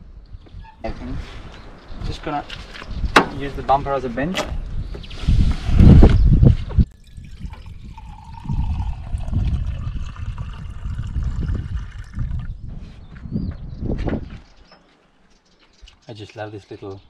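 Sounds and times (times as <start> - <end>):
wind on microphone: 0.0 - 14.6
water filling a pot: 6.9 - 12.4.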